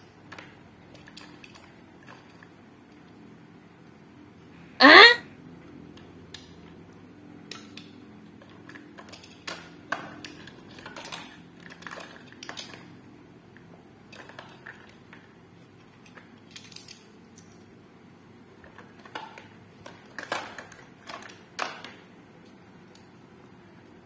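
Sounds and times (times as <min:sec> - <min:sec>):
plastic toys clicking and knocking: 0:00.0 - 0:04.0, 0:05.9 - 0:23.3.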